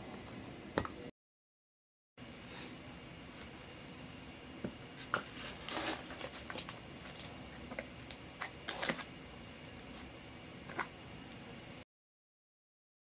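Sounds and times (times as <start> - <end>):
plastic bag crinkling: 5.3 - 9.1.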